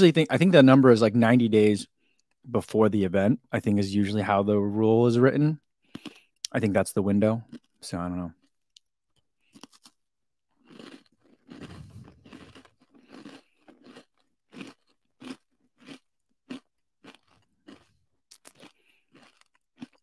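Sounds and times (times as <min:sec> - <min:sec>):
person chewing crunchy bar: 0:05.8 - 0:06.5, 0:07.4 - 0:20.0
bite into crunchy bar: 0:10.6 - 0:20.0.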